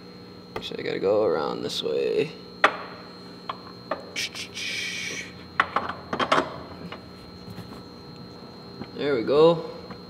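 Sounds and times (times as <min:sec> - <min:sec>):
short rasping noise: 0:04.2 - 0:05.4.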